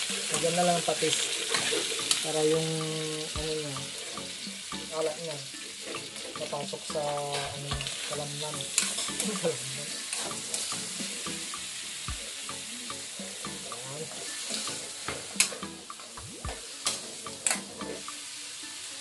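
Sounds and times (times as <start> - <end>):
meat sizzling in a wok: 0.0 - 19.0.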